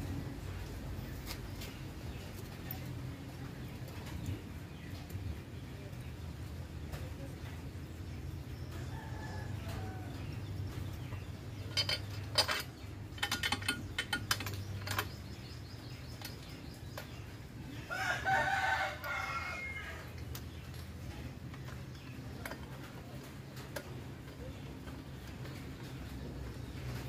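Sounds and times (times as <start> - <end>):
low steady hum: 0.0 - 27.0
rooster crowing: 17.8 - 20.1.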